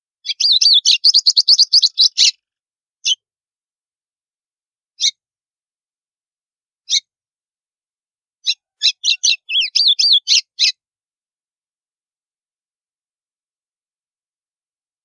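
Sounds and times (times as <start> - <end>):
bird chirping and warbling: 0.2 - 2.4, 6.9 - 7.1, 8.4 - 10.8.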